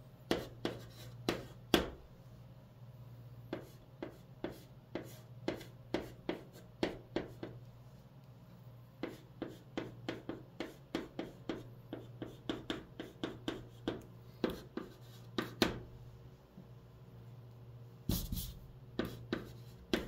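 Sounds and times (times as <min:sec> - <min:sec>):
chalk tapping and scraping on board: 0:00.3 - 0:02.0, 0:03.5 - 0:07.6, 0:09.0 - 0:15.8, 0:18.1 - 0:20.0.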